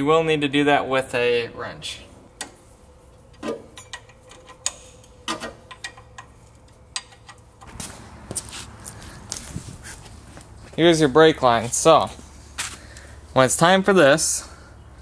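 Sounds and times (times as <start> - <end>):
wrench clicking on bolts: 3.4 - 7.4.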